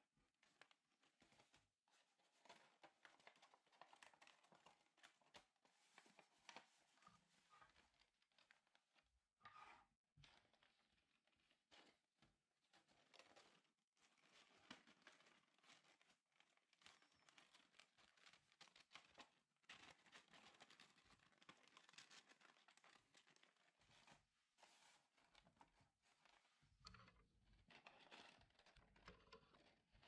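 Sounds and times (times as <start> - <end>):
paper rustling and crinkling: 2.2 - 8.8, 12.8 - 26.7.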